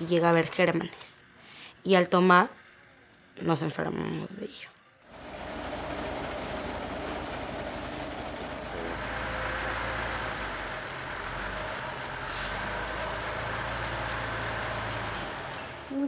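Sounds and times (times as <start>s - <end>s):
water pouring from hose into drum: 5.1s - 10.4s
truck engine idling: 5.1s - 16.0s.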